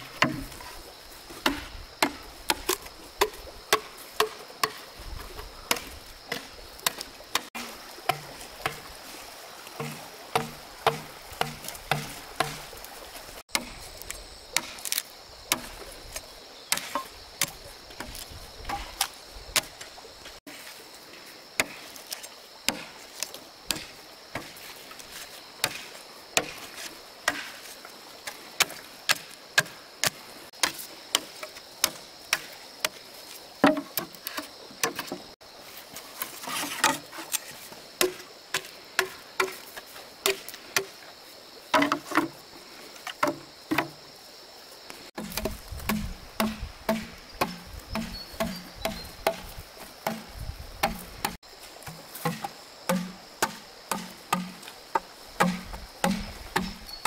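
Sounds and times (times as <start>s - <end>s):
hand tool striking wood: 0.0s - 0.7s, 1.4s - 4.9s, 5.7s - 9.0s, 9.8s - 12.8s, 14.5s - 15.8s, 16.7s - 19.7s, 28.6s - 33.0s, 33.6s - 35.3s, 36.5s - 40.9s, 41.7s - 42.4s, 43.1s - 44.0s, 45.1s - 57.0s
high insect drone: 0.0s - 57.0s.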